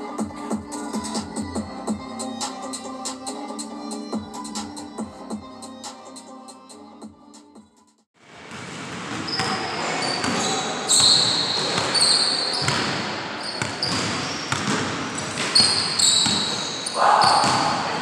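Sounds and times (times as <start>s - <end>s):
sneakers squeaking on court: 8.5s - 18.0s
basketball bouncing on hardwood: 13.6s - 16.5s.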